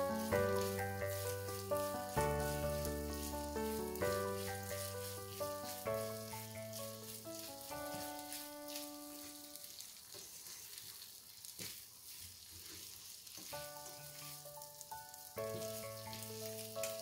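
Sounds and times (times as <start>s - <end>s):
soft background music: 0.0s - 9.8s, 13.4s - 17.0s
rice flour sizzling in a pan: 0.0s - 17.0s
spatula stirring in a pan: 0.0s - 17.0s.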